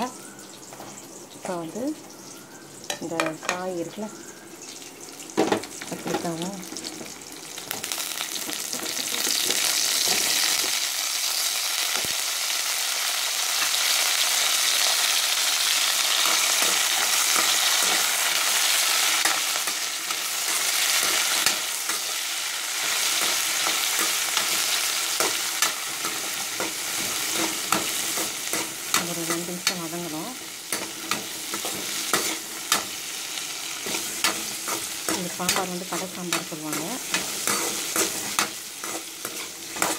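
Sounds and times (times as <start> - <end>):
shallots sizzling in hot oil: 0.0 - 39.9
metal spatula scraping and tapping pan: 22.8 - 33.0, 33.8 - 39.9.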